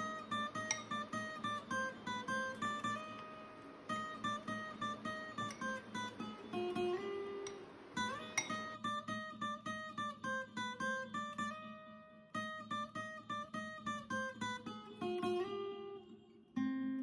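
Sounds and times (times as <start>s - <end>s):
plucked-string melody: 0.0s - 17.0s.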